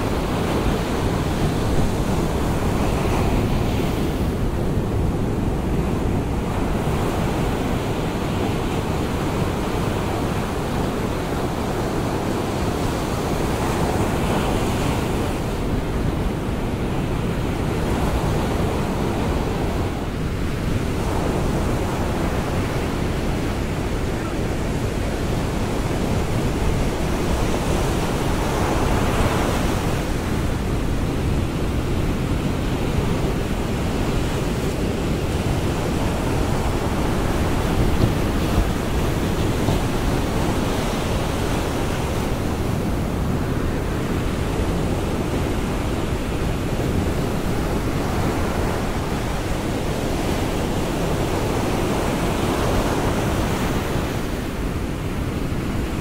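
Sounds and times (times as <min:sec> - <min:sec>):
ocean surf breaking: 0:16.8 - 0:55.9.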